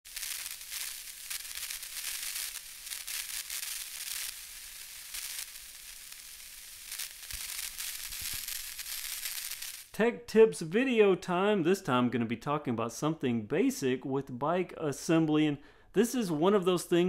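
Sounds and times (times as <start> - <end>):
crackling hissing noise: 0.0 - 10.8.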